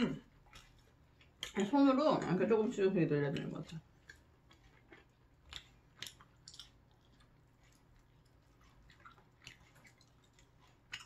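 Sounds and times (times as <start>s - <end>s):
chewing: 0.0s - 11.0s
soft mouth clicks and smacks: 3.7s - 11.0s.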